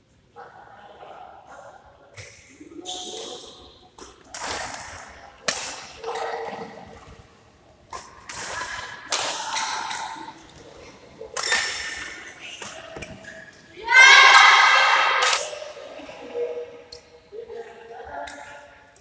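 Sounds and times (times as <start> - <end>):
rackets hitting shuttlecock: 4.0 - 6.0, 7.9 - 10.3, 11.3 - 13.4.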